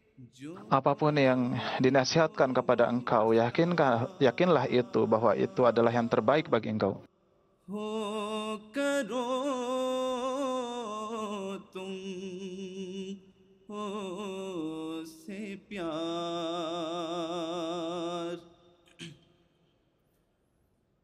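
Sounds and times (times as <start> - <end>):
man chanting unaccompanied: 0.3 - 7.1.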